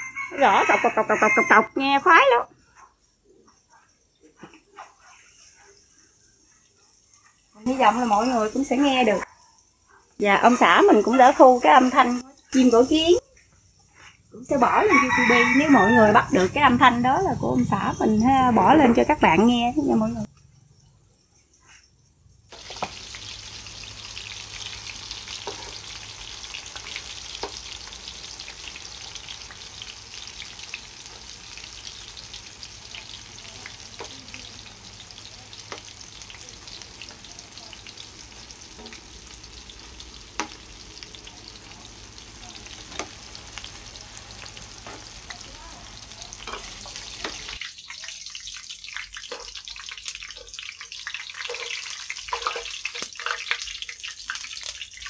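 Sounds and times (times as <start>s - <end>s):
tofu sizzling in hot oil: 4.5s - 20.8s, 22.4s - 55.0s
metal spatula clicks and pops: 40.4s - 40.6s, 42.8s - 43.2s, 46.3s - 48.0s, 50.2s - 54.8s.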